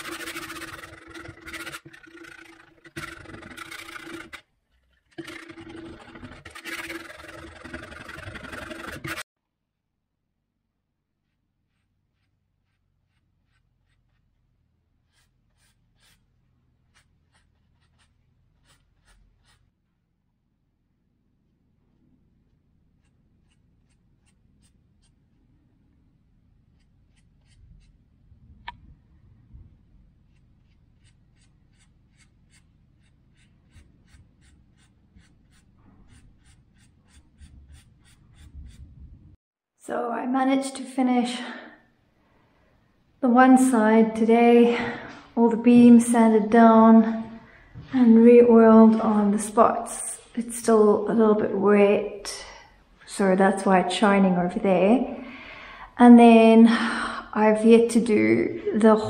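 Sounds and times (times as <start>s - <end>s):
paintbrush strokes on wood: 11.1s - 19.7s, 29.7s - 39.1s.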